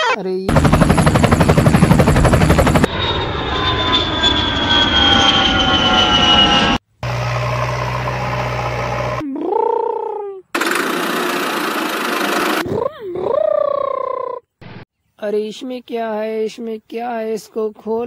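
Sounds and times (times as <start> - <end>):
aircraft passing with falling whine: 0.5 - 9.2
noisy engine: 0.5 - 9.2, 10.6 - 12.6
wavering tone: 1.3 - 9.3.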